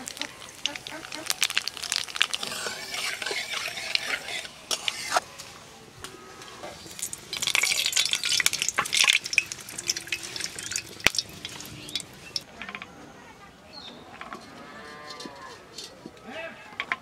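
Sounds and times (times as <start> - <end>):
oil being poured: 0.0 - 5.0, 6.8 - 12.4
oil sizzling and crackling: 0.0 - 5.5, 6.6 - 12.5.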